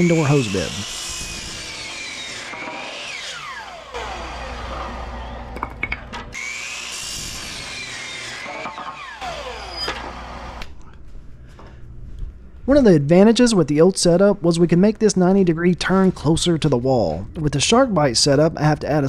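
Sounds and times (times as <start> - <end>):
miter saw cutting wood: 0.0 - 5.6, 6.3 - 10.7.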